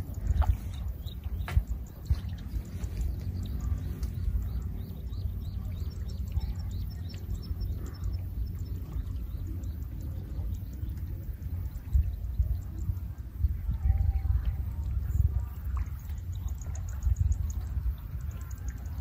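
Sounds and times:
small bird chirping rapidly: 0:00.0 - 0:13.1
wind rumble on microphone: 0:00.0 - 0:19.0.

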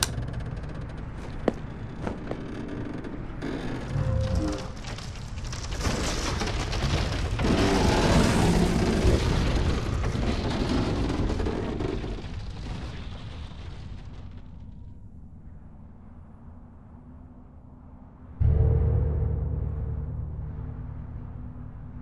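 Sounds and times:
explosion-like rumbling: 0:18.4 - 0:22.0.

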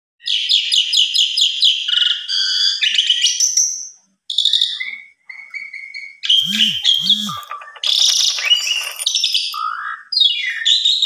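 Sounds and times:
starling singing: 0:06.2 - 0:10.0.

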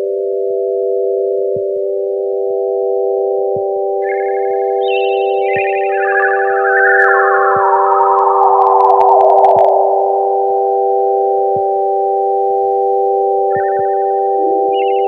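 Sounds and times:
sustained sine tone chord: 0:00.0 - 0:15.0
warbling electronic bleeps: 0:04.0 - 0:11.0, 0:13.5 - 0:15.0
soft low blips: 0:05.6 - 0:12.0.

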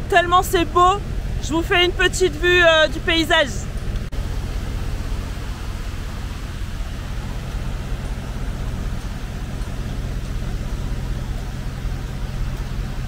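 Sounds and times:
diesel truck engine running: 0:00.0 - 0:13.0
steady hiss: 0:03.8 - 0:13.0.

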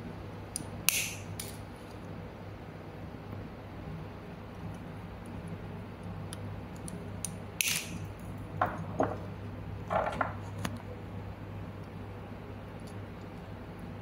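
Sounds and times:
steady low hum: 0:00.0 - 0:14.0
side cutters snipping wire: 0:00.6 - 0:01.6, 0:06.8 - 0:08.0.

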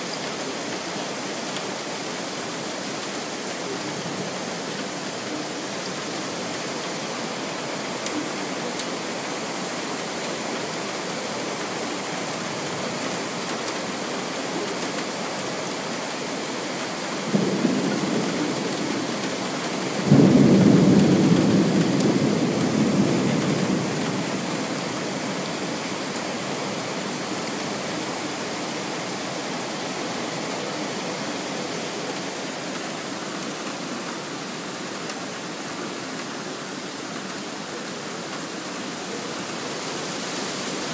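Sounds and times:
steady rain falling: 0:00.0 - 0:40.9
thunder cracking and rumbling: 0:17.3 - 0:24.8.

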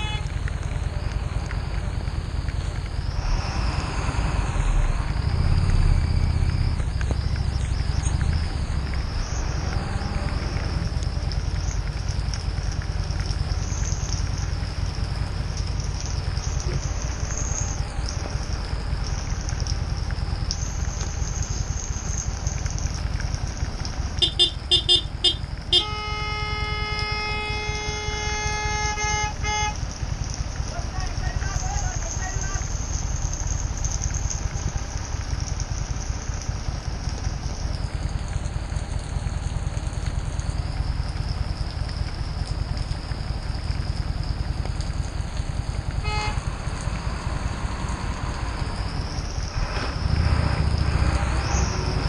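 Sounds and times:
vehicle horn toots and blast: 0:00.0 - 0:00.3, 0:24.2 - 0:29.8, 0:46.0 - 0:46.4
motorcycle engine throbbing: 0:00.0 - 0:30.7
wind and rain hiss: 0:00.0 - 0:52.0.

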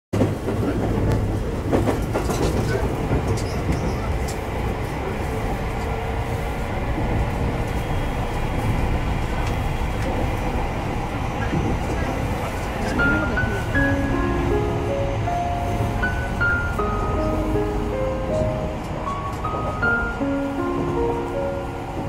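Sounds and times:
train wheels on rail: 0:00.2 - 0:22.0.

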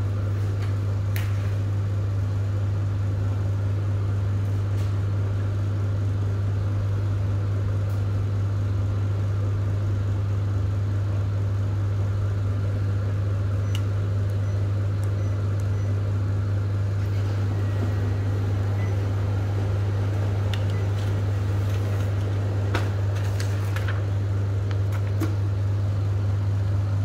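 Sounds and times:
copier humming: 0:00.0 - 0:27.0
copier clicks: 0:18.5 - 0:25.6.

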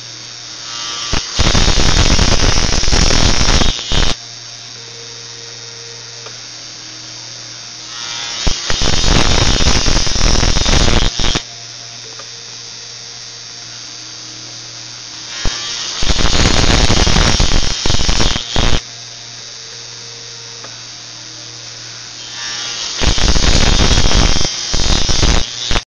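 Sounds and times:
drilling machine boring into paper: 0:00.0 - 0:04.2, 0:07.8 - 0:11.4, 0:15.1 - 0:18.8, 0:22.2 - 0:25.8
steady low hum: 0:00.0 - 0:25.6.

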